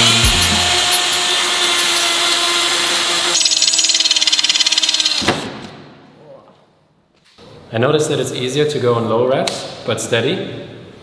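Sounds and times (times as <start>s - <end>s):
drill boring through metal: 0.0s - 5.3s.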